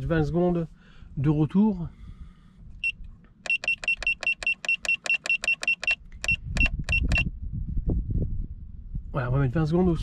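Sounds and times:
short high beeps: 0:02.8 - 0:07.3.

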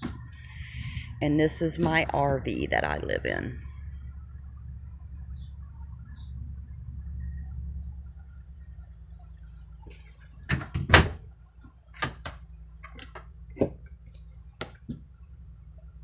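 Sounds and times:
low steady rumble: 0:00.0 - 0:16.0
door clicks and knocks: 0:10.5 - 0:11.2.

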